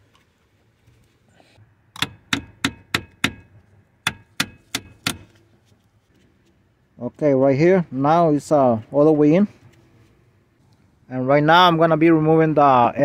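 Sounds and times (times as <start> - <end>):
sharp metallic taps: 2.0 - 5.3.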